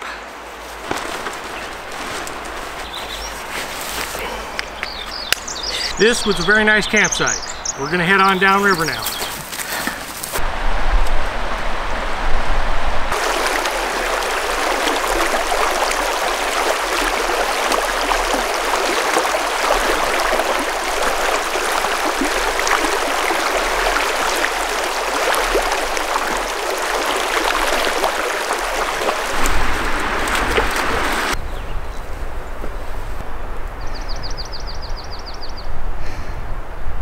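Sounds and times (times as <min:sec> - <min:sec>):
splashing from wading: 0:00.8 - 0:04.3, 0:13.1 - 0:31.4
river rushing over rocks: 0:13.1 - 0:31.4.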